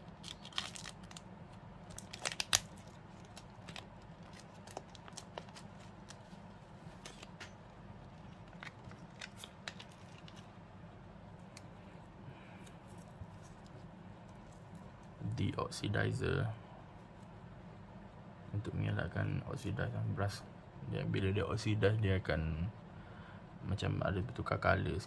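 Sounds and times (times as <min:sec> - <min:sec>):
plastic bag crinkling: 0:00.0 - 0:06.4, 0:08.2 - 0:10.5.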